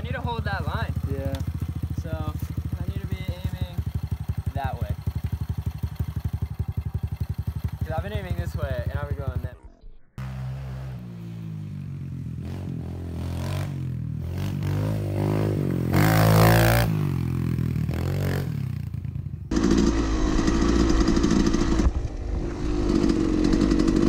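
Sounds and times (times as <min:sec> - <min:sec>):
dirt bike engine running: 0:00.0 - 0:24.0
dirt bike revving past: 0:10.2 - 0:24.0.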